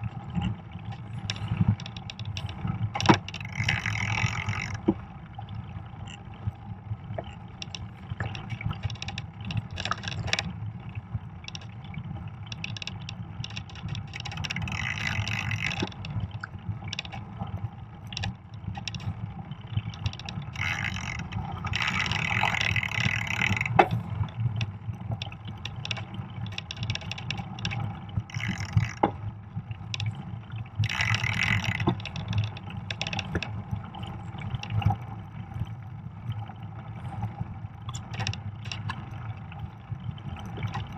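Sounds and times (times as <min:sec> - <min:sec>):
wind: 0:00.0 - 0:40.9
bike clicks and rattles: 0:00.4 - 0:05.0, 0:07.2 - 0:10.6, 0:11.4 - 0:11.8, 0:12.4 - 0:17.3, 0:18.1 - 0:19.2, 0:19.8 - 0:29.3, 0:30.8 - 0:33.6, 0:37.8 - 0:39.1.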